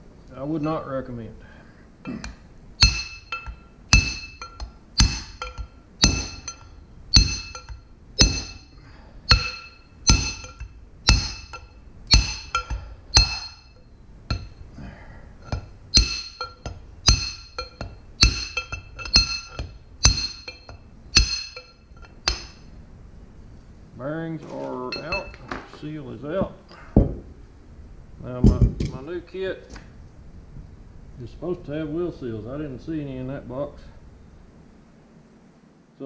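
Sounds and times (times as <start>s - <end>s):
hammer striking steel punch: 2.8s - 14.6s, 15.5s - 22.6s.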